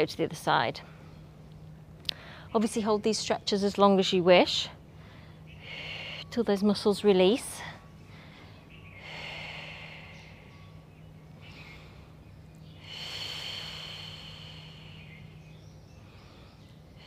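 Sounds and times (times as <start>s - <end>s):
faint low hum: 0.0s - 17.0s
woman breathing slowly: 2.0s - 2.6s, 4.8s - 6.4s, 7.5s - 17.0s.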